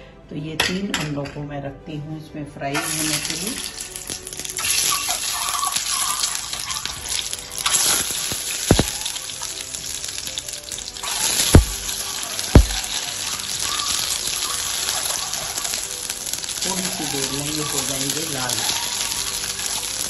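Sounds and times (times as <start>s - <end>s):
hot oil sizzling: 2.8s - 20.0s
sharp oil pops: 7.6s - 9.3s, 11.2s - 13.0s.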